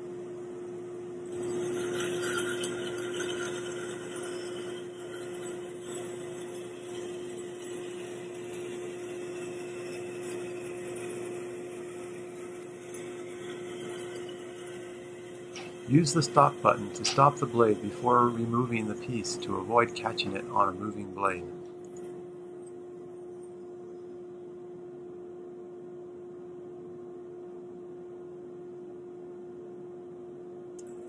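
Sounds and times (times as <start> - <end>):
band saw cutting wood: 1.3 - 21.6.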